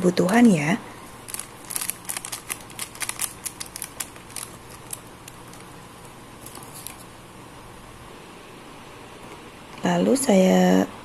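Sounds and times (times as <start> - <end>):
pepper sachet shaken and tapped: 1.2 - 5.7.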